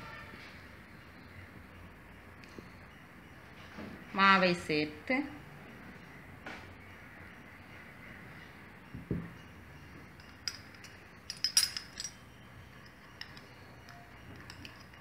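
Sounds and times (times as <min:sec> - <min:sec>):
kitchenware clinking: 0:10.2 - 0:15.0.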